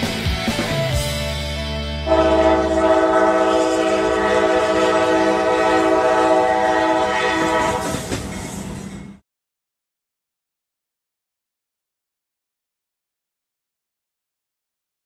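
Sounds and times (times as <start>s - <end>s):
train horn chord: 2.0s - 8.1s.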